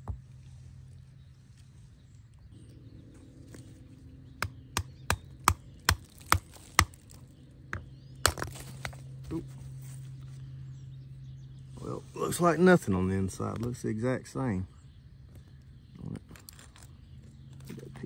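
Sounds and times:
faint low hum: 0:00.0 - 0:18.0
hammer striking rock: 0:04.4 - 0:07.0, 0:07.7 - 0:08.6.

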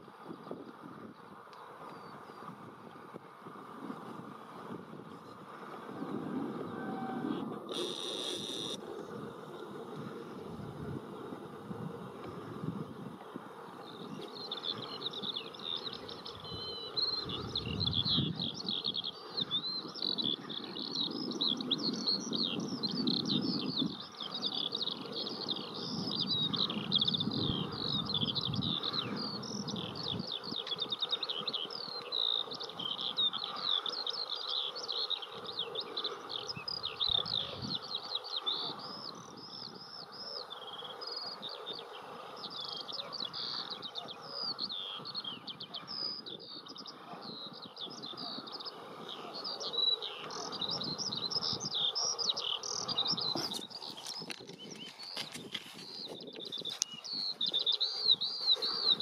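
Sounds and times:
bird twittering song: 0:05.1 - 0:09.2, 0:13.7 - 0:59.0.

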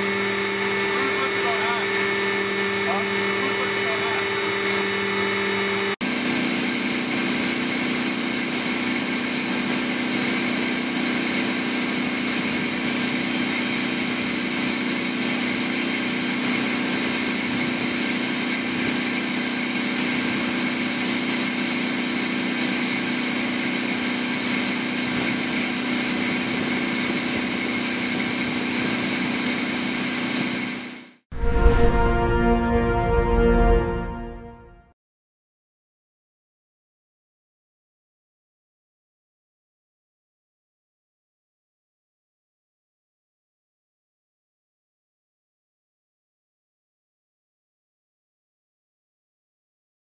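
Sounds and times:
turbine engines droning: 0:00.0 - 0:34.5.

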